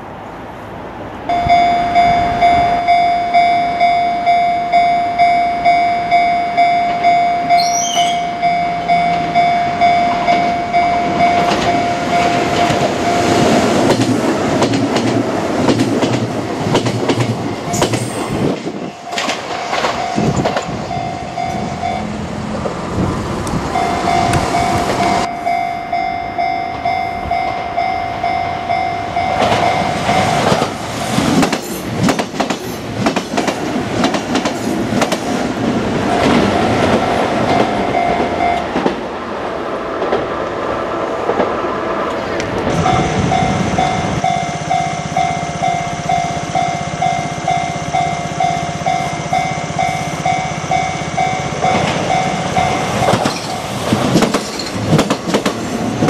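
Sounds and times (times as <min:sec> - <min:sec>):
electronic crossing warning bell: 0:01.3 - 0:14.0, 0:17.4 - 0:22.2, 0:23.7 - 0:30.8, 0:36.3 - 0:38.8, 0:42.8 - 0:53.7
train wheels clattering on rails: 0:10.1 - 0:25.3, 0:29.2 - 0:39.2, 0:41.2 - 0:56.0.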